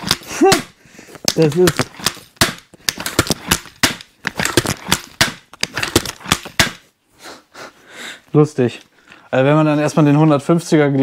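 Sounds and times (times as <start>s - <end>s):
repeating bow clacks and snaps: 0.0s - 6.9s.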